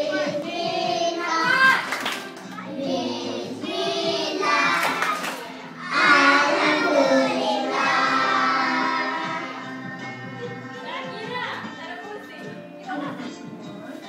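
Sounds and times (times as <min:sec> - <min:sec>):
children singing into a microphone: 0:00.0 - 0:01.7, 0:02.7 - 0:05.2, 0:05.8 - 0:10.2.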